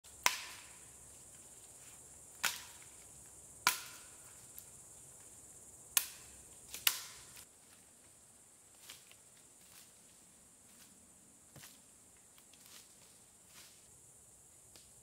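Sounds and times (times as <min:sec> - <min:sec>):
knife striking wood: 0:00.2 - 0:00.8, 0:03.6 - 0:04.1, 0:06.0 - 0:07.4.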